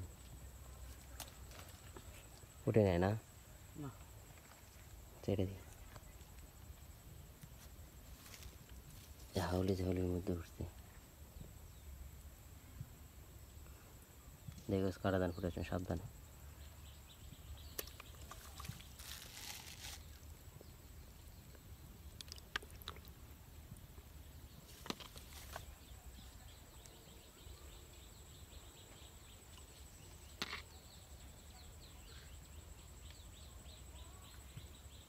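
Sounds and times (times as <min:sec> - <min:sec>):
faint bird chirps: 0:12.6 - 0:35.0.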